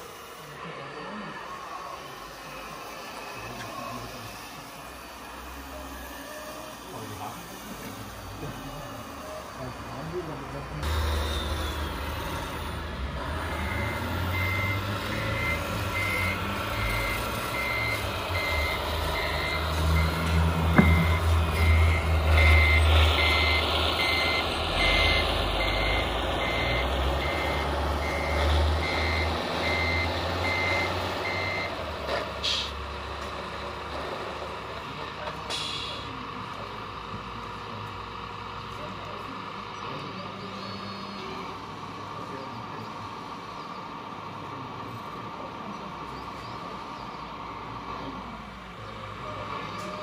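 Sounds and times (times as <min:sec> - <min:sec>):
reversing warning beeper: 0:10.8 - 0:31.8.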